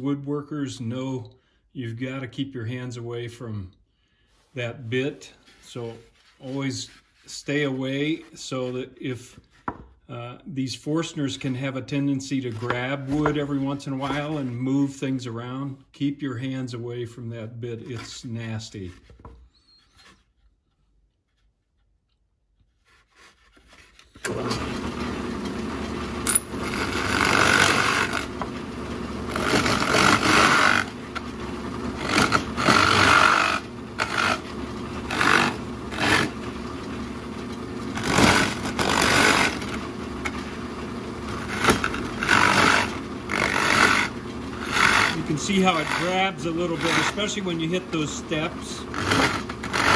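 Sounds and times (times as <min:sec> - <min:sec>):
drill press motor running: 0:24.0 - 0:49.9
drill bit grinding into wood: 0:24.1 - 0:49.9.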